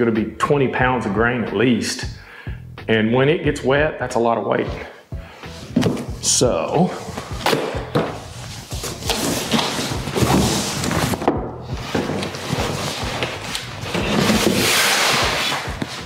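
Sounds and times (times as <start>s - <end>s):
cardboard box scraping and knocking: 7.0s - 16.0s
fabric cover rustling: 11.8s - 16.0s.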